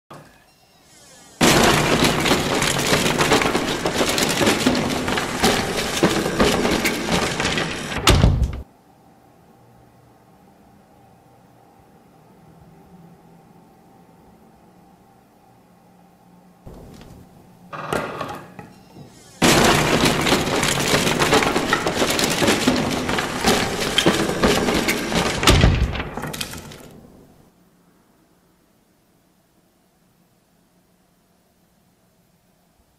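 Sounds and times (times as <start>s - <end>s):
faint hiss: 0.2s - 1.4s
heavy thud: 1.4s - 8.6s, 16.7s - 17.5s, 19.0s - 27.4s
heavy wooden crash: 1.4s - 8.6s, 16.7s - 18.3s, 19.0s - 27.5s
wooden planks clattering: 1.4s - 8.6s, 16.7s - 27.4s.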